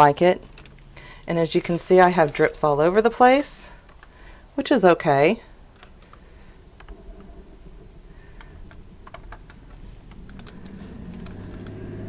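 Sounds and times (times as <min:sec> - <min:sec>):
low hum: 0:05.4 - 0:12.0.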